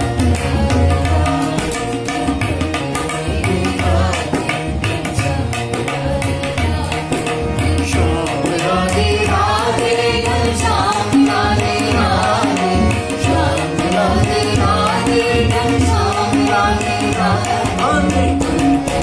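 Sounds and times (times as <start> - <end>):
hand drum beat: 0.0 - 19.0
woman singing: 0.0 - 19.0
man singing: 0.6 - 5.9, 7.8 - 9.4, 17.6 - 19.0.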